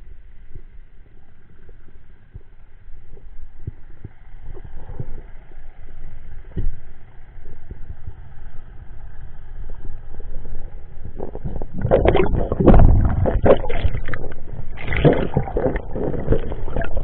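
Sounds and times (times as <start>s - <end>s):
muffled underwater rumble: 0.0s - 17.0s
low knocks and thuds: 11.4s - 17.0s.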